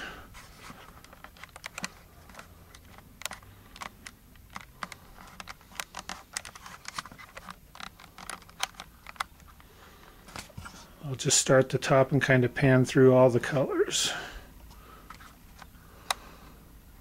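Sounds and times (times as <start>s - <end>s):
camera handling clicks and taps: 1.0s - 9.7s.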